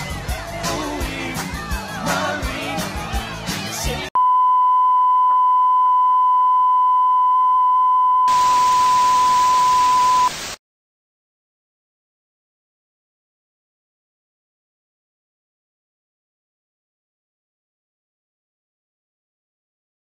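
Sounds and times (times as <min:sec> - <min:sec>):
music with singing: 0:00.0 - 0:04.2
steady single-pitch beep: 0:04.2 - 0:10.3
tv static hiss: 0:08.3 - 0:10.6.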